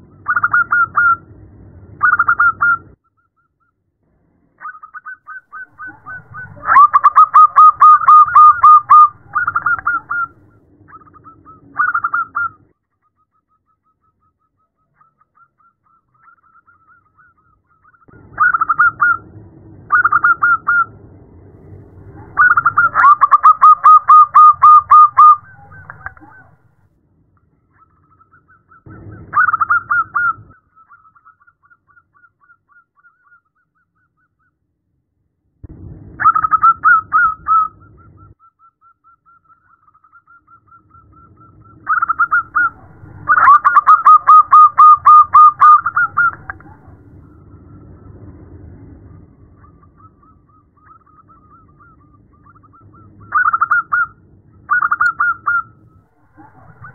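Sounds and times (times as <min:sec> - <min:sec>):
dove cooing staccato: 0:05.5 - 0:10.3, 0:22.0 - 0:26.6, 0:41.9 - 0:47.1, 0:56.2 - 0:56.9.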